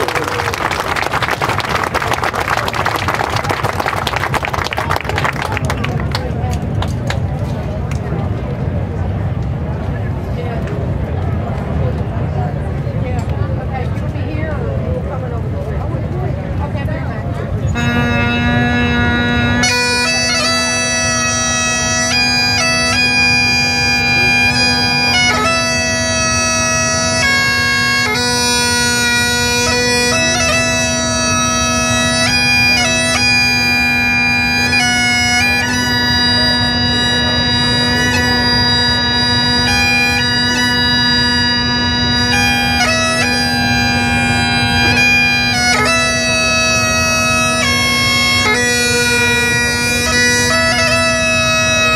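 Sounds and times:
bagpipe drones: 0:17.6 - 0:51.9
bagpipe chanter melody: 0:17.7 - 0:51.9.

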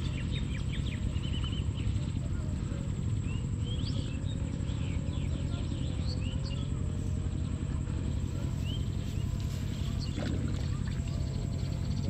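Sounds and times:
birds chirping: 0:00.0 - 0:12.0
low rumble: 0:00.0 - 0:12.0.

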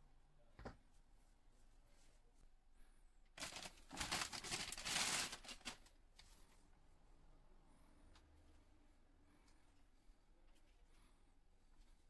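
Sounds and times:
plastic bag rustling: 0:03.4 - 0:06.0.

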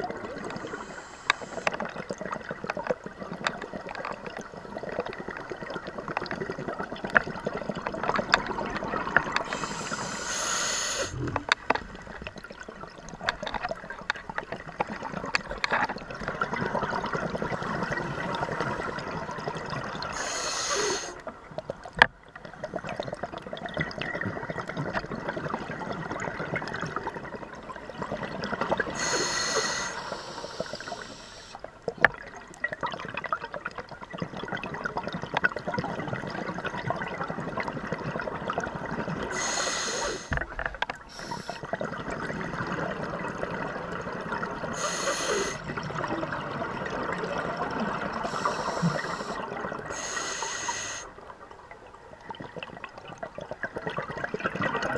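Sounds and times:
bubbling water: 0:00.0 - 0:54.9
diver breathing through regulator: 0:00.6 - 0:01.8, 0:09.5 - 0:11.6, 0:20.1 - 0:21.2, 0:29.0 - 0:31.6, 0:39.3 - 0:40.4, 0:41.1 - 0:41.7, 0:44.7 - 0:45.7, 0:48.2 - 0:51.1.

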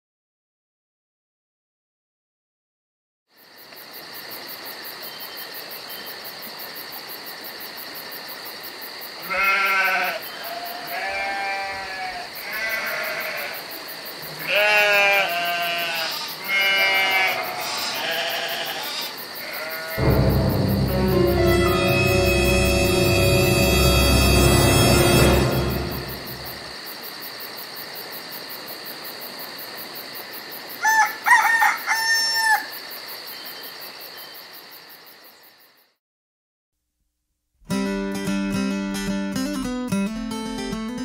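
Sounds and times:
farm animal bleating: 0:09.2 - 0:13.6, 0:14.3 - 0:20.0
music: 0:20.0 - 0:26.7, 0:37.7 - 0:41.0.

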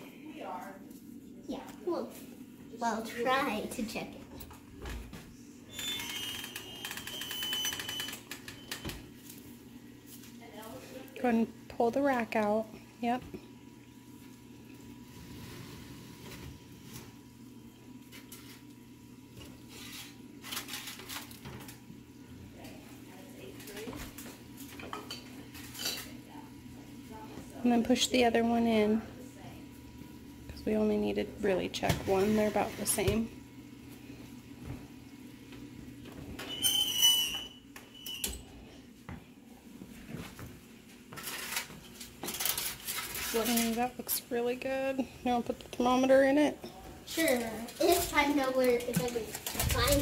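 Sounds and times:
steady low hum: 0:00.0 - 0:05.7
metal oven rack squealing: 0:05.7 - 0:08.7, 0:36.4 - 0:38.5
foil crinkling: 0:19.8 - 0:21.8, 0:41.1 - 0:43.9.

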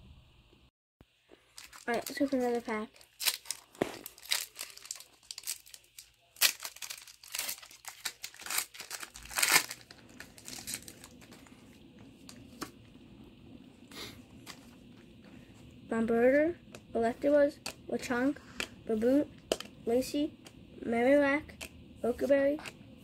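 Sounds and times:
foil wrapper crinkling and tearing: 0:01.4 - 0:11.6.

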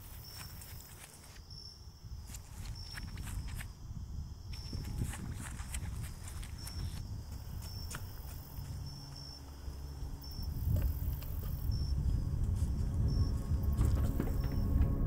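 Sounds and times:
crickets chirping: 0:00.0 - 0:15.0
low rumble: 0:08.8 - 0:15.0.

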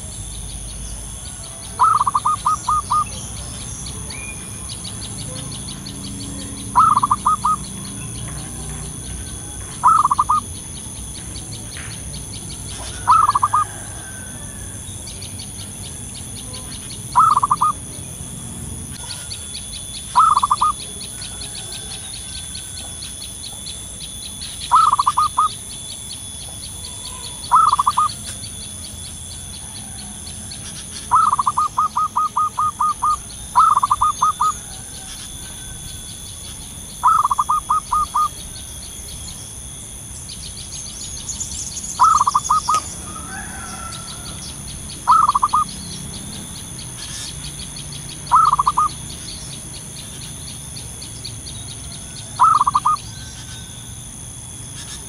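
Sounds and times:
dove staccato cooing: 0:00.0 - 0:18.0, 0:19.0 - 0:23.6, 0:24.4 - 0:25.6, 0:26.4 - 0:28.4, 0:29.4 - 0:36.1, 0:37.0 - 0:38.7, 0:42.0 - 0:46.2, 0:48.1 - 0:49.3, 0:51.8 - 0:53.7.

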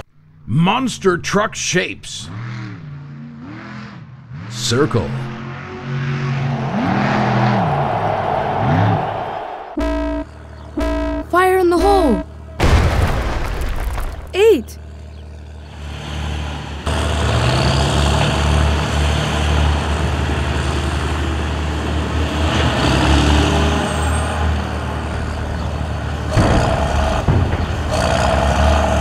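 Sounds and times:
heavy diesel engine running: 0:09.8 - 0:12.6.

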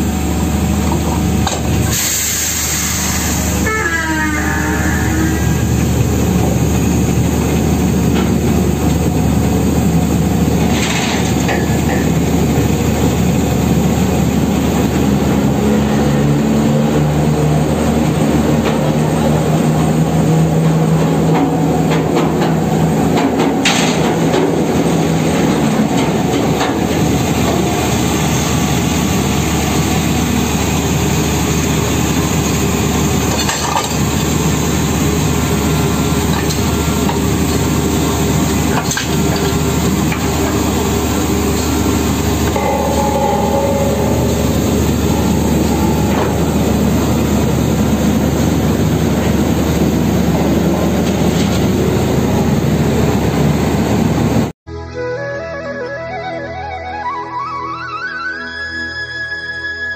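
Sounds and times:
drilling machinery din: 0:26.9 - 0:50.7
metal pipe clanks: 0:42.4 - 0:47.4.

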